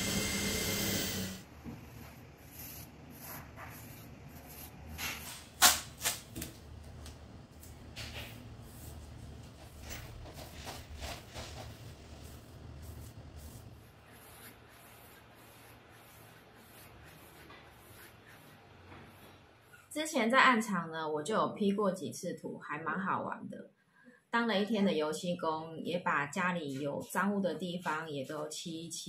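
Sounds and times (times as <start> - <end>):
brush rubbing and scraping on wall: 0.0 - 6.4, 7.5 - 19.9.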